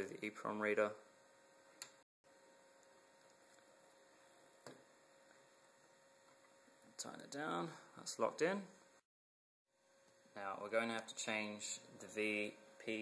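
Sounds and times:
faint steady hum: 0.0 - 9.0, 9.7 - 13.0.

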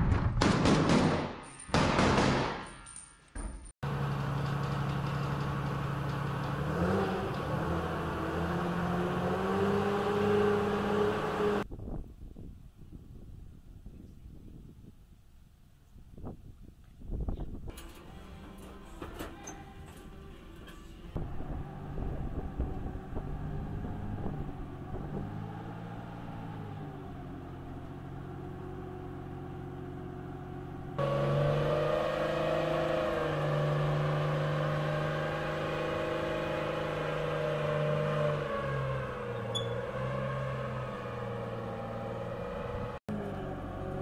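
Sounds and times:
tracked vehicle diesel engine: 3.8 - 11.7, 17.7 - 44.0.

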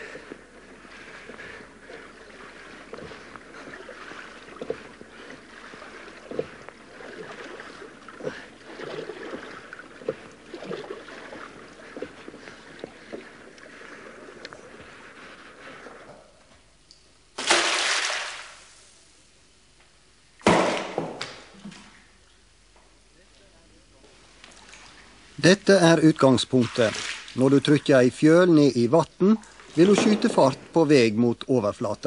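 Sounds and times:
water splashing against hull: 0.0 - 16.4, 26.0 - 28.4.

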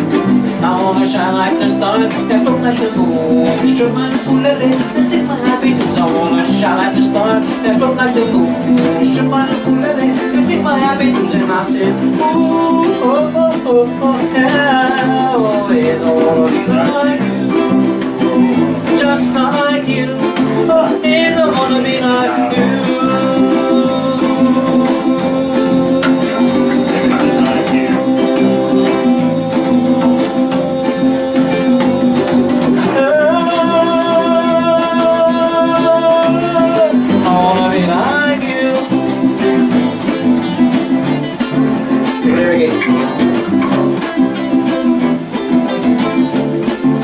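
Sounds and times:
acoustic guitar strumming: 0.0 - 47.0
wordless melody voice: 0.0 - 47.0.

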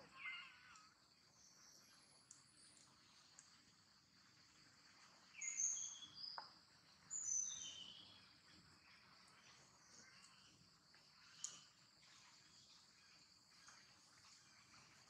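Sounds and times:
whistled bird notes: 0.0 - 0.9, 5.4 - 6.4, 7.1 - 8.2.

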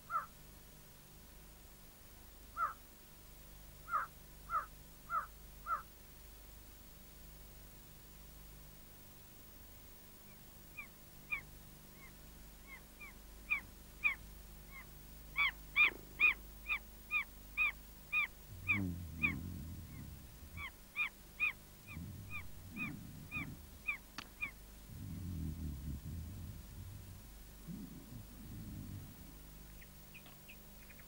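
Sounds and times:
low muffled sounds: 11.6 - 31.0
bird calling sharply: 13.5 - 19.4.

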